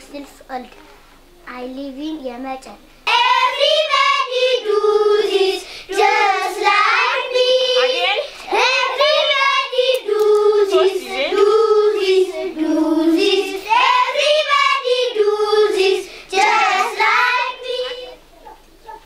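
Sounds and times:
children singing in unison: 0:03.1 - 0:18.2.

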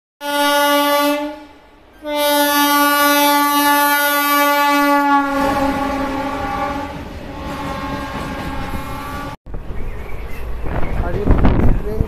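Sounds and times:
train horn blasts: 0:00.2 - 0:09.4
train rumbling: 0:00.5 - 0:12.0.

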